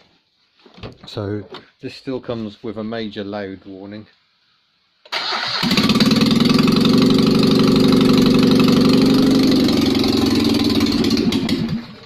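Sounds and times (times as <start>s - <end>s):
engine running without exhaust: 5.6s - 12.0s.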